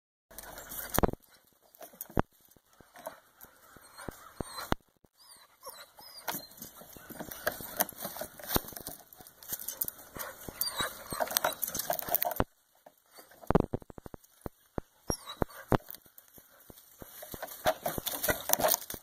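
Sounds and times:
dogs sniffing and pawing: 0.3s - 19.0s.

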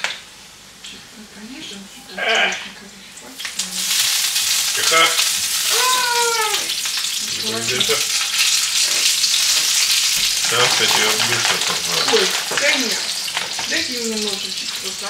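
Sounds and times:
meat sizzling in hot oil: 2.5s - 15.0s.

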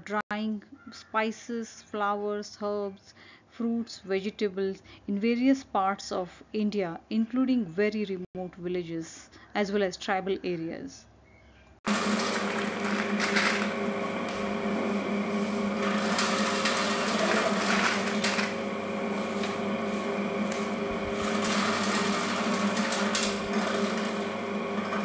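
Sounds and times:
electric slicer motor humming: 11.9s - 25.0s.

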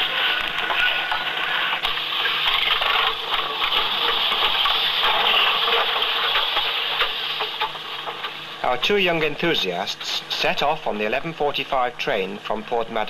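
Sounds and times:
sharp clicks and crackles: 0.0s - 8.6s
steady rushing hiss: 0.0s - 13.0s.

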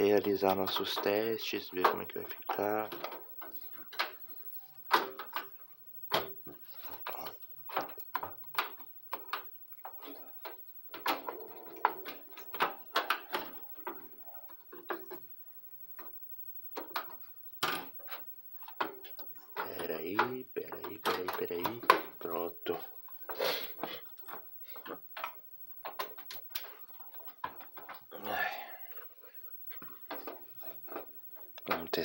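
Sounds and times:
plastic and metal parts clicking: 16.0s - 28.1s.

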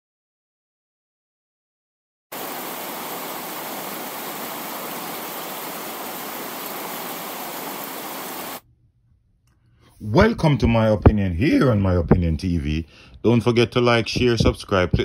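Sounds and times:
static-like rushing hiss: 2.3s - 8.6s.

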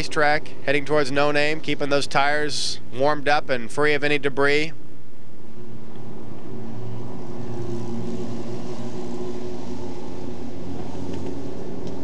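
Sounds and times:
racing car engines: 0.0s - 2.9s, 5.4s - 12.0s.

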